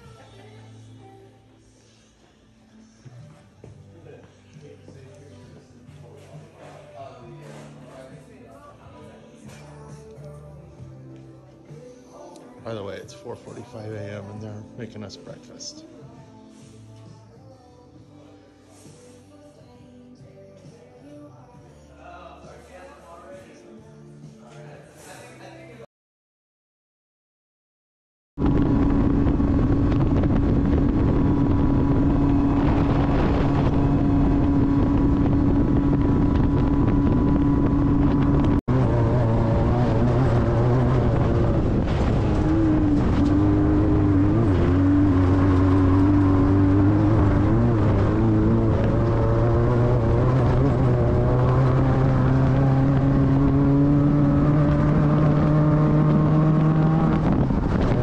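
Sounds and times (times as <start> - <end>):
vehicle engine running: 28.4 - 58.0.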